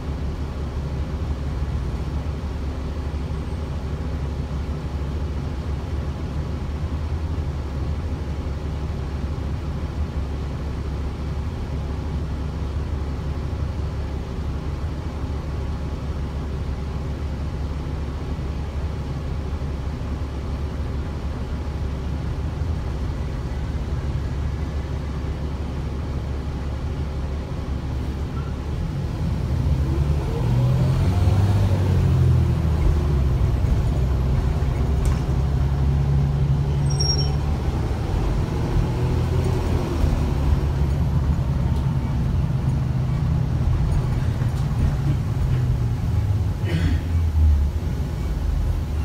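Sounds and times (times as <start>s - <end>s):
bus engine and road rumble: 0.0s - 49.0s
brief high squeak: 36.7s - 37.5s.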